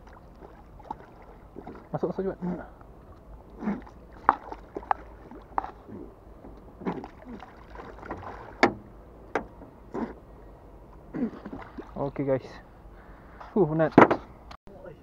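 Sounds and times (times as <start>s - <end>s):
knocks and bumps on boat: 4.1s - 10.1s, 13.8s - 14.3s.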